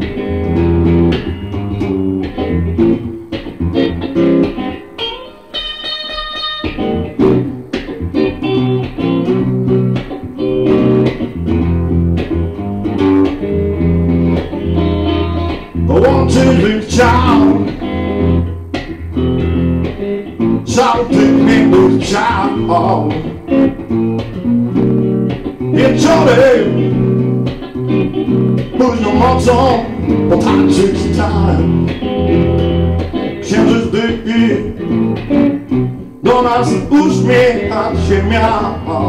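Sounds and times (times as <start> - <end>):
bluesy electric guitar: 0.0 - 39.0
low bass line: 10.7 - 39.0
person singing: 15.8 - 17.8, 20.6 - 23.4, 25.7 - 27.0, 28.8 - 31.9, 33.4 - 34.9, 36.2 - 39.0.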